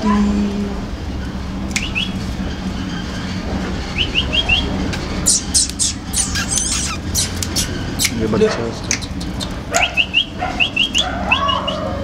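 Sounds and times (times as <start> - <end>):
small birds chirping: 1.7 - 2.2, 3.9 - 11.9.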